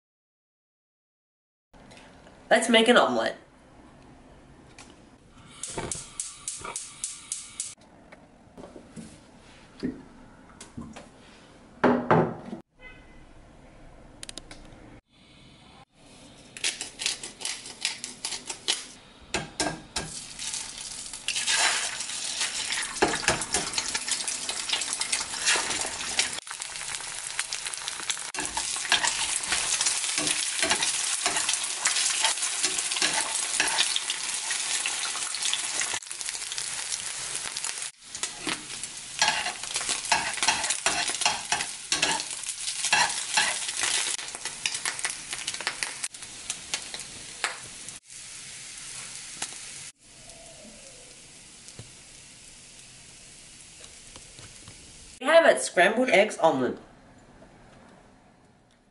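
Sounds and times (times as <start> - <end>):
eggs sizzling in a pan: 17.6 - 55.2
metal spatula scraping and tapping: 39.2 - 42.3.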